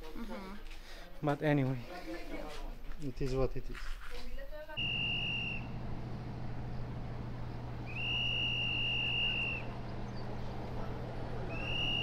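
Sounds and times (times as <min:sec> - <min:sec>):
high whistle-like tone: 0:04.8 - 0:05.7, 0:07.9 - 0:09.7, 0:11.5 - 0:12.0
low hum: 0:04.8 - 0:12.0.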